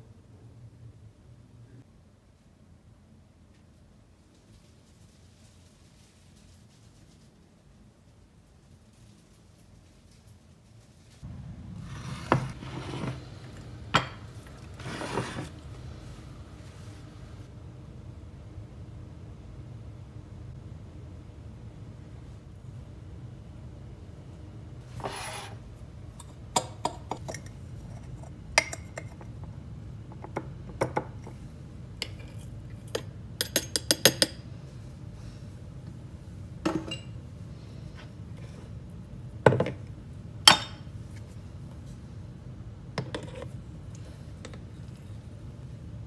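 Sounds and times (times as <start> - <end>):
glass jar and metal clinks: 36.7 - 37.2.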